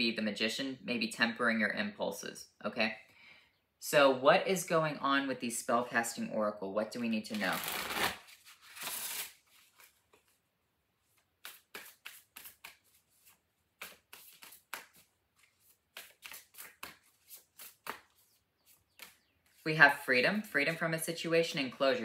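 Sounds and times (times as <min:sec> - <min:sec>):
cards shuffled by hand: 0:07.3 - 0:10.4, 0:11.0 - 0:19.6.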